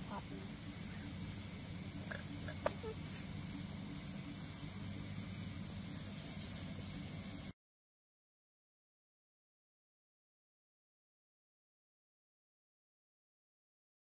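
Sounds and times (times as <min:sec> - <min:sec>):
night insects chorus: 0:00.0 - 0:07.5.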